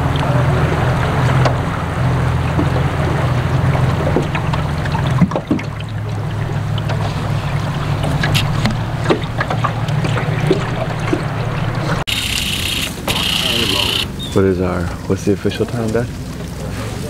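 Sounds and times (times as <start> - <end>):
boat motor humming: 0.0 - 17.0.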